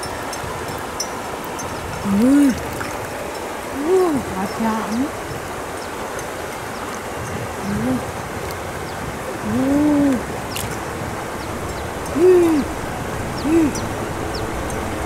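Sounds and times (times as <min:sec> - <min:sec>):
steady background hiss: 0:00.0 - 0:15.0
woman exclaiming: 0:12.2 - 0:12.7, 0:13.5 - 0:13.8.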